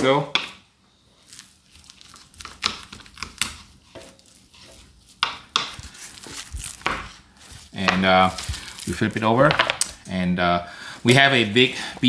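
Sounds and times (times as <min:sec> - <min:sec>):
knife cutting through rib: 0:01.3 - 0:09.0.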